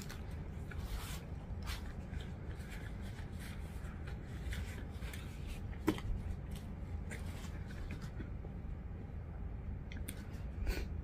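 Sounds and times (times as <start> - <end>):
plastic and paper crinkling: 0.0 - 8.5.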